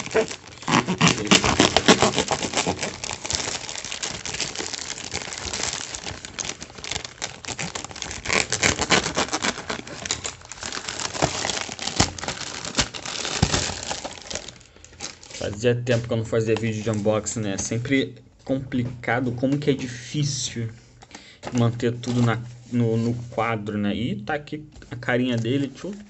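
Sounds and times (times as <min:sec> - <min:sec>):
knife cutting plastic: 0:00.0 - 0:14.6
plastic bag crinkling and tearing: 0:00.0 - 0:17.4.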